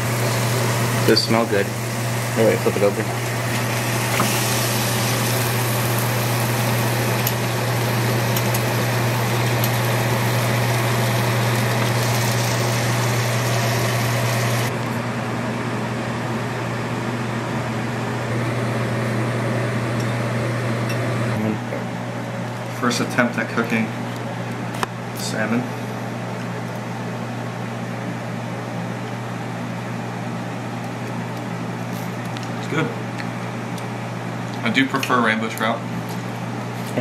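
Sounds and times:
fan hum: 0:00.0 - 0:37.0
fish sizzling in a frying pan: 0:03.5 - 0:14.7.

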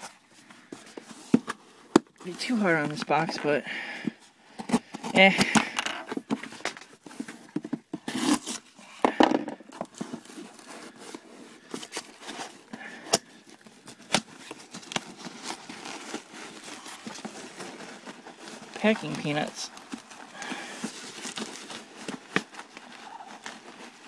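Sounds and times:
knife slitting packing tape: 0:08.1 - 0:08.7
cardboard flaps scraping and rustling: 0:09.6 - 0:24.0.

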